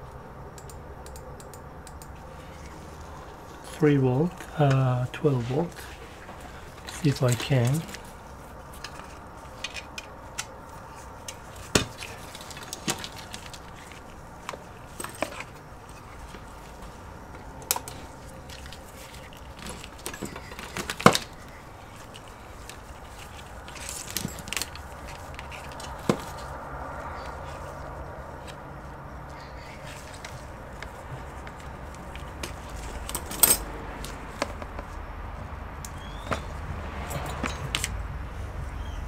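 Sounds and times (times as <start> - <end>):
rustling: 2.2 - 38.5
cables and plugs clattering: 5.7 - 26.6.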